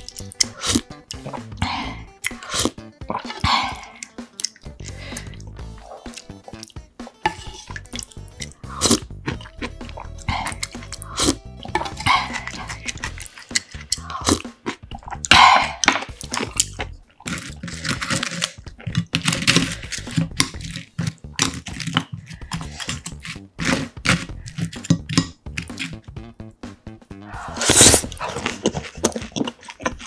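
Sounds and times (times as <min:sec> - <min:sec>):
slurping broth: 0:00.0 - 0:06.7, 0:07.3 - 0:26.0, 0:27.2 - 0:30.0
wet chewing and lip smacking: 0:00.0 - 0:06.8, 0:07.6 - 0:23.4, 0:27.5 - 0:30.0
chopsticks clicking: 0:06.0 - 0:14.8.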